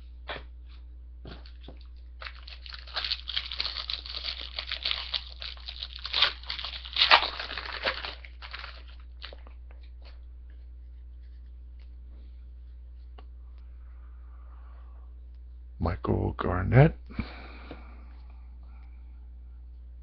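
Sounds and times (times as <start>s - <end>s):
wrapper crinkling and tearing: 2.2s - 9.6s.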